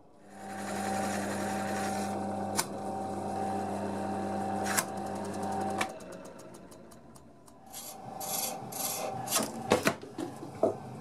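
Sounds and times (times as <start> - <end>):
lathe motor hum: 0.3 - 9.7.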